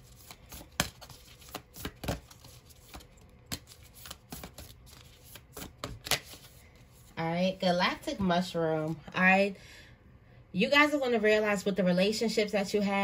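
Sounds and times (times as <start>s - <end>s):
cards being shuffled by hand: 0.0s - 7.2s.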